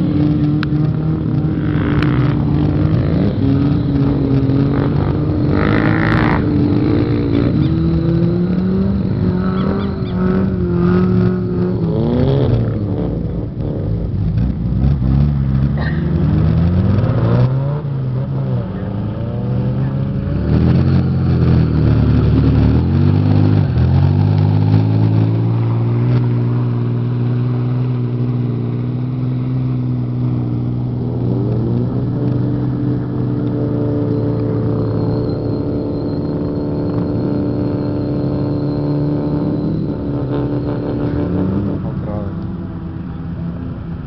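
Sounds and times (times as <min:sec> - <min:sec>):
off-road engine revving under load: 0:00.0 - 0:44.0.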